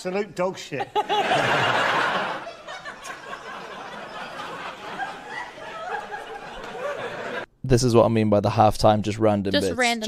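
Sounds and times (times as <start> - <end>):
audience laughing: 0.8 - 7.5.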